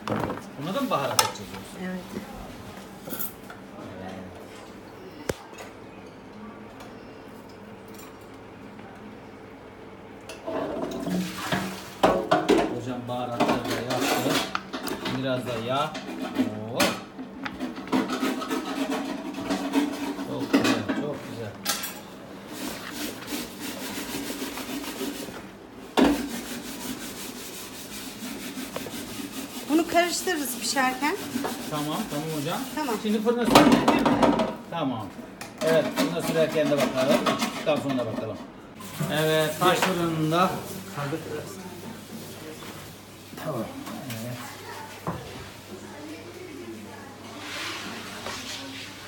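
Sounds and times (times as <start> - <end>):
kitchen clatter: 10.3 - 27.5, 28.4 - 34.7, 35.5 - 45.6
hands rubbing potato pieces: 22.5 - 25.4, 26.2 - 33.3.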